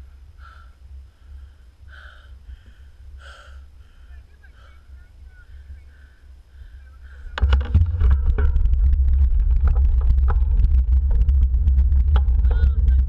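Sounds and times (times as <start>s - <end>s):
wind buffeting microphone: 4.1s - 13.0s
bike rattling on rough asphalt: 7.2s - 13.0s.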